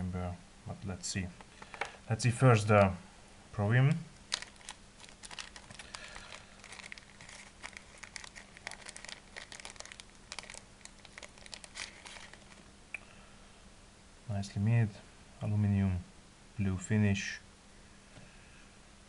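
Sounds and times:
plastic packet crinkling: 4.2 - 12.7.

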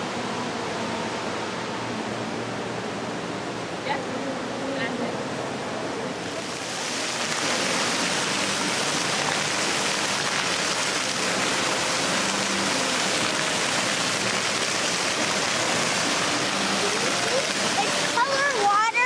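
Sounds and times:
fountain jets splashing into pool: 6.0 - 19.0.

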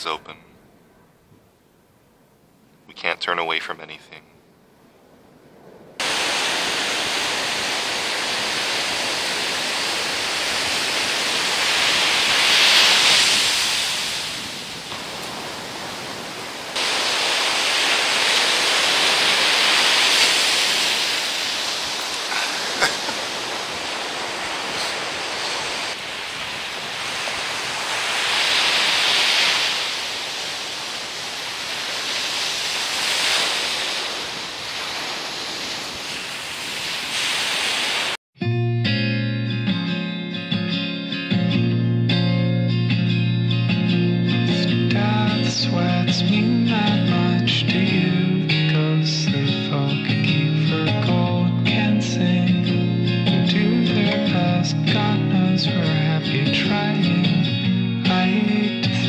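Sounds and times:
ocean surf breaking on beach: 5.6 - 38.2, 50.3 - 59.0.

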